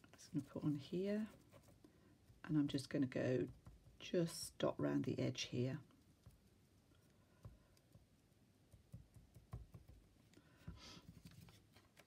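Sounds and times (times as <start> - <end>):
faint taps and clicks: 3.4 - 4.0, 5.9 - 11.4.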